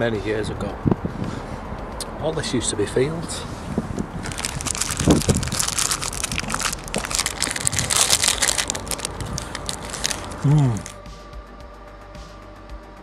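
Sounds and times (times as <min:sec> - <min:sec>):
chocolate bar crunching: 0:04.2 - 0:11.0.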